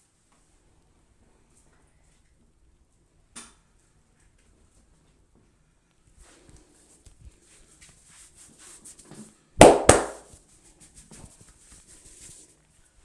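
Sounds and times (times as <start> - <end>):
hands rubbing hair and skin: 6.2 - 13.0
loud sharp hits: 9.6 - 10.2.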